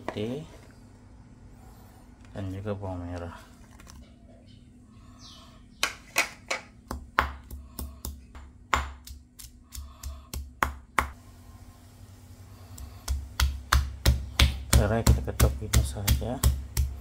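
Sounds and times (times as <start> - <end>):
mortar and pestle pounding: 5.8 - 11.2, 12.7 - 17.0.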